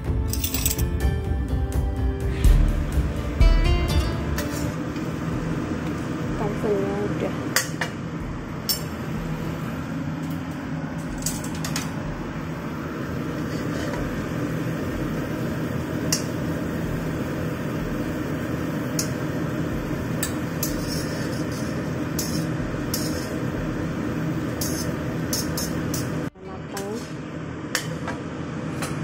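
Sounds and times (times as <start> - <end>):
steady hum: 0.0 - 29.0
metal spatula scraping wok: 13.4 - 14.0, 20.6 - 23.4.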